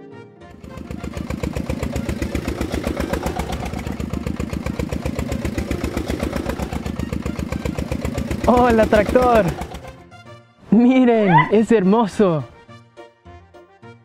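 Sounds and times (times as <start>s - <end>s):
engine idling with rapid chug: 0.5s - 10.2s.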